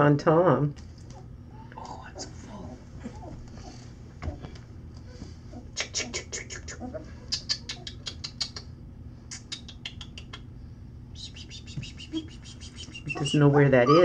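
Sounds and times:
puppies squeaking: 5.1s - 8.7s, 11.4s - 14.0s.

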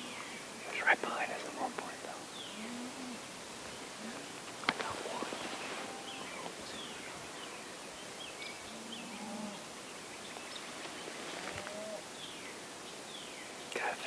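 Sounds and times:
songbirds chirping: 0.0s - 14.0s
faint low bird call: 4.0s - 7.6s, 11.2s - 12.4s.

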